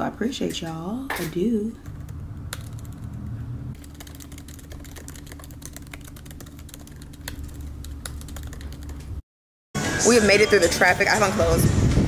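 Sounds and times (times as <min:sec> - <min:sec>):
laptop keyboard typing: 0:01.8 - 0:09.2.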